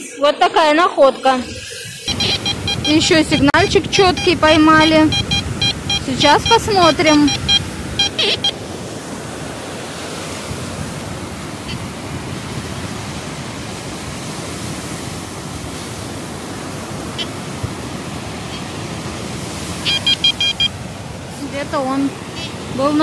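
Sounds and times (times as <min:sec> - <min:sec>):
surf rushing: 0:00.0 - 0:23.0
metal detector beeps: 0:02.0 - 0:08.6, 0:19.8 - 0:20.8, 0:22.4 - 0:22.6.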